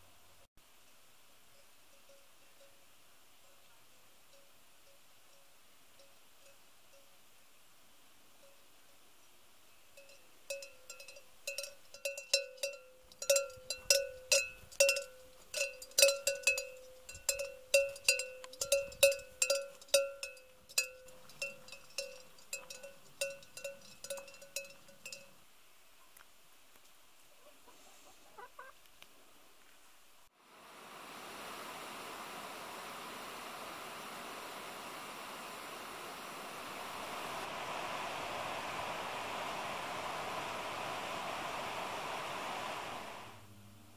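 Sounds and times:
cow bell clanking: 1.5 - 3.7, 9.9 - 25.4
faint hen clucks: 27.3 - 28.8.

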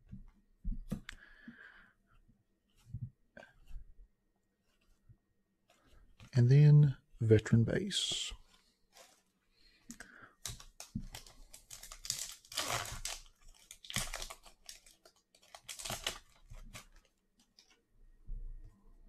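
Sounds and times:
foil pack tearing and crinkling: 10.4 - 17.1.

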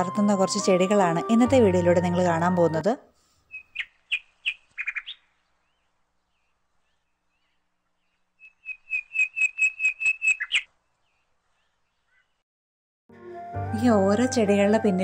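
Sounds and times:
bird chirping: 3.4 - 12.4.

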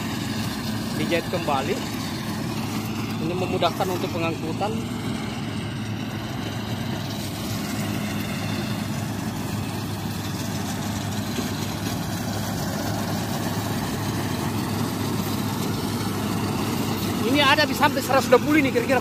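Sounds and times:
combine harvester engine humming: 0.0 - 19.0.

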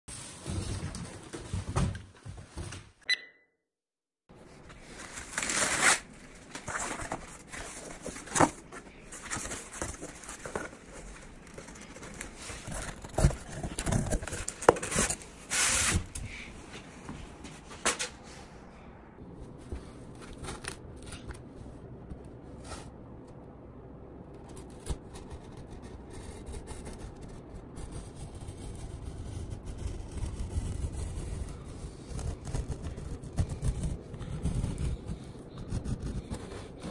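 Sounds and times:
cardboard scraping and rustling: 4.5 - 16.9.

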